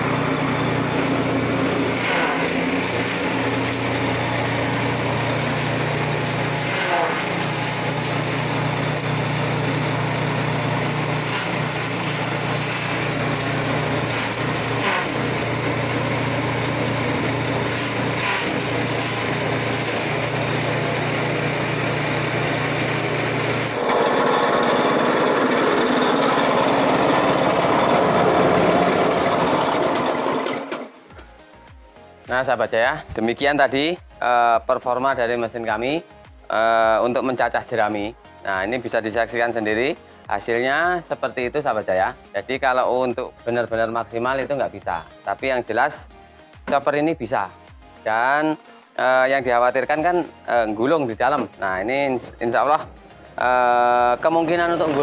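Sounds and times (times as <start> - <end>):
chaff cutter chopping straw: 0.0 - 30.8
motor humming: 0.0 - 30.9.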